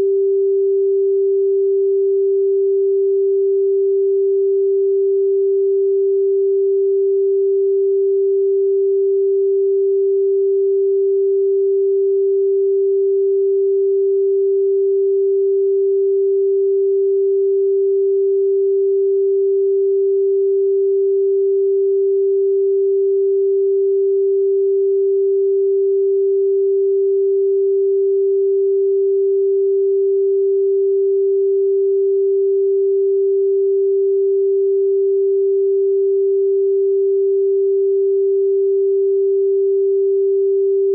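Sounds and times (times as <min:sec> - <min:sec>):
steady sine tone: 0:00.0 - 0:40.9.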